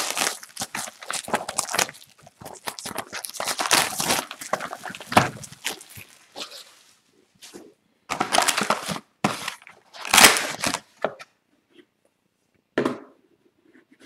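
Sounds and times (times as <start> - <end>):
cardboard tearing and crinkling: 0.0 - 6.7, 8.1 - 11.0.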